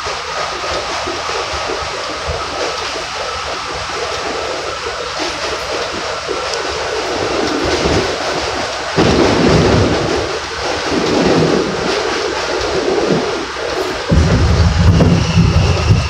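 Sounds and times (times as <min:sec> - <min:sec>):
subway car wheels rumbling: 0:00.0 - 0:16.0
faint high whine: 0:11.4 - 0:16.0.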